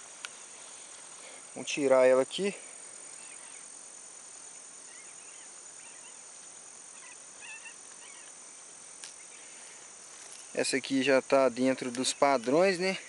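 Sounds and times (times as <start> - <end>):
faint bird chirps: 3.1 - 3.7, 4.8 - 8.4
high-pitched insect buzzing: 3.1 - 10.5.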